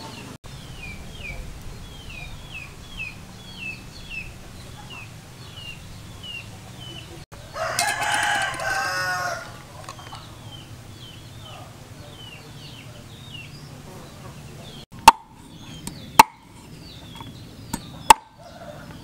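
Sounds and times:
small bird chirping: 0.0 - 19.0
steady low hum: 0.5 - 18.6
rooster crowing: 2.1 - 11.2, 18.1 - 19.0.

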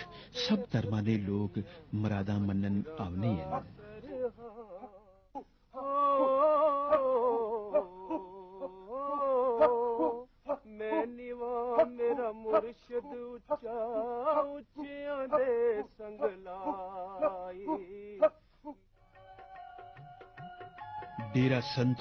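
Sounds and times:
sharp percussive taps: 19.2 - 21.6.

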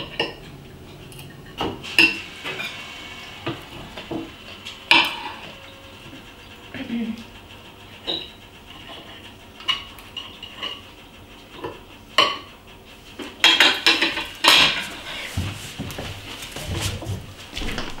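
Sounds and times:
cutlery clinking on plates: 13.4 - 14.9.

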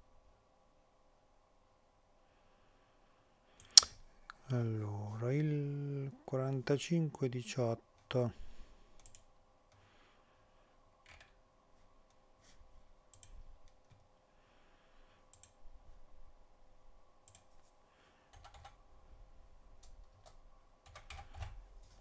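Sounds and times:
keyboard typing: 9.0 - 9.3, 11.0 - 11.4, 18.3 - 18.8, 19.8 - 21.6
computer mouse clicks: 9.0 - 9.8, 11.0 - 11.4, 13.1 - 14.0, 15.3 - 15.6, 17.2 - 17.5, 18.3 - 18.8.

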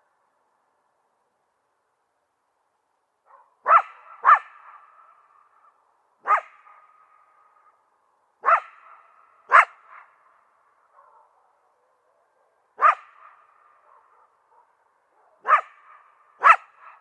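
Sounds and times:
coyote barking: 3.3 - 7.4, 8.4 - 10.2, 10.9 - 17.0.

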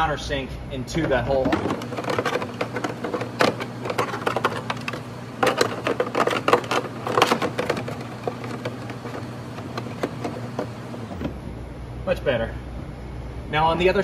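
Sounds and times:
plastic parts clicking and knocking: 1.1 - 10.8.

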